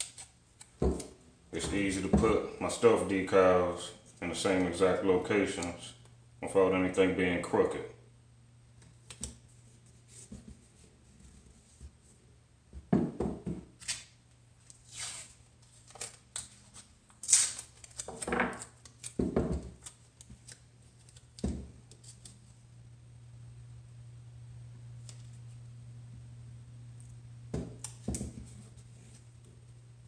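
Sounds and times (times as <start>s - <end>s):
tape being peeled and torn: 0.0s - 1.1s, 13.8s - 22.5s.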